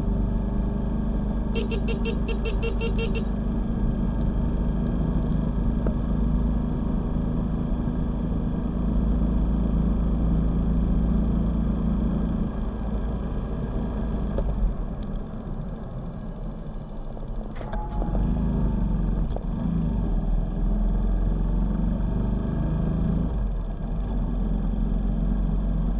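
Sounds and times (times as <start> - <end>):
motorcycle wind and road noise: 0.0 - 11.4.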